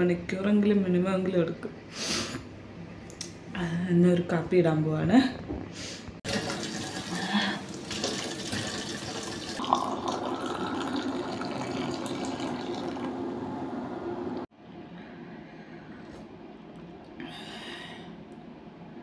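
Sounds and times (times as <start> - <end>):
water pouring into a mug: 6.3 - 13.2.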